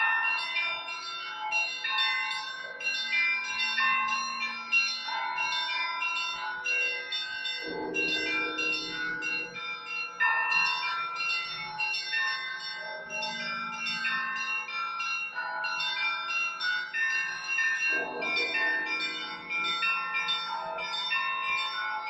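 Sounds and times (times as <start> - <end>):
church bells pealing: 0.0 - 22.0
deep bell ringing: 7.6 - 10.7, 17.8 - 22.0.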